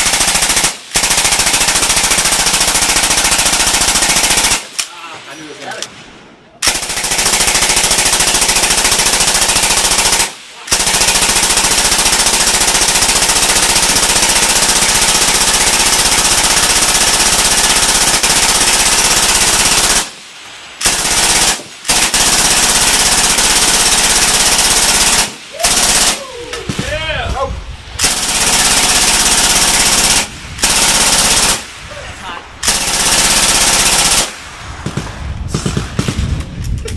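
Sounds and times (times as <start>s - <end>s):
suppressed machine gun bursts: 32.6s - 36.9s.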